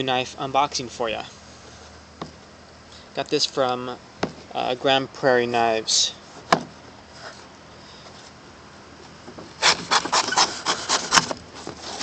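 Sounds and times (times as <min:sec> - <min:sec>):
knife cutting cardboard box: 0:09.6 - 0:12.0.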